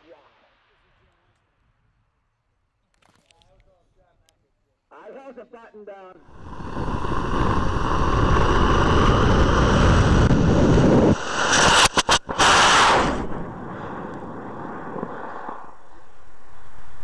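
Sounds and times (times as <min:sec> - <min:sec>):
harsh hissing blast: 0:06.2 - 0:17.0
rocket motor roaring: 0:06.2 - 0:17.0.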